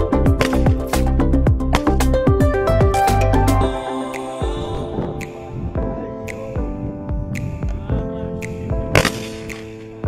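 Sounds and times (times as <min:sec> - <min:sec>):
electronic music with synth chords: 0:00.0 - 0:10.0
deep kick drum: 0:01.5 - 0:03.0, 0:06.6 - 0:08.9.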